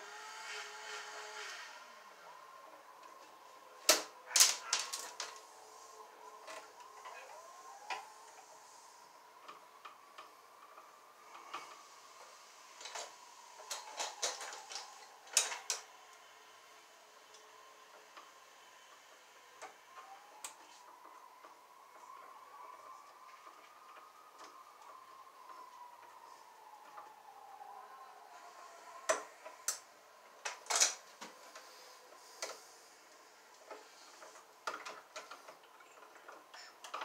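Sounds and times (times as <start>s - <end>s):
wire strippers clicking and snipping: 3.8s - 5.4s, 13.7s - 15.8s.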